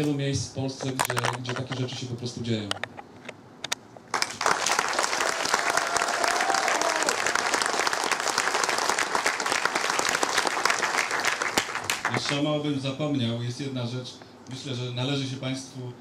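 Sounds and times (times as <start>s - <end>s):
audience applauding: 4.1s - 12.4s.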